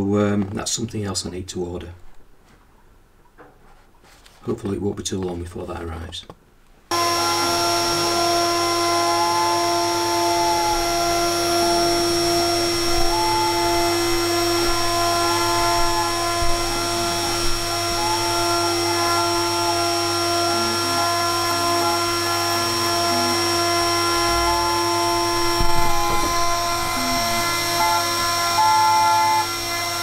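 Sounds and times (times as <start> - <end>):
router spindle whine: 6.9 - 30.0
stepper motors whirring: 6.9 - 30.0.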